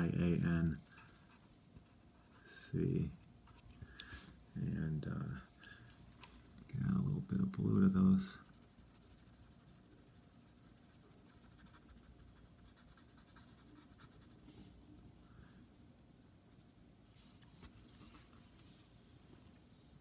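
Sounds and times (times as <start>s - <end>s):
pencil scratching on paper: 7.8s - 14.7s.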